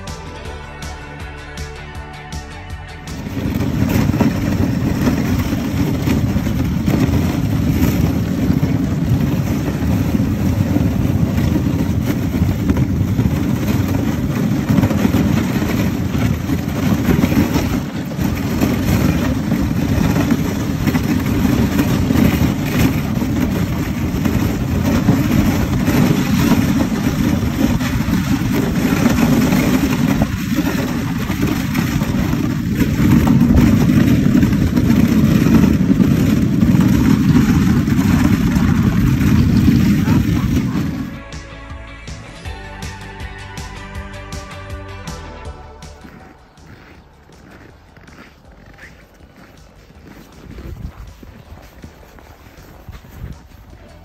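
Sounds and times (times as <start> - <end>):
wind buffeting microphone: 3.1 - 41.2, 46.0 - 54.0.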